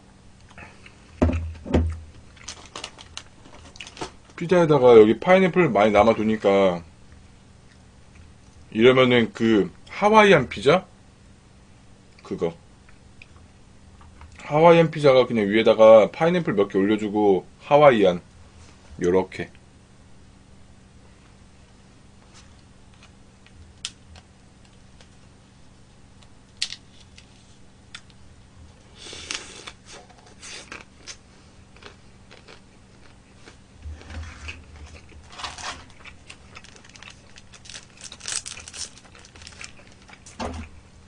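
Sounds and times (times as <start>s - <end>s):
paper packet crinkling and tearing: 2.3s - 4.3s, 34.8s - 40.4s
chewing: 29.3s - 33.6s, 34.5s - 37.4s.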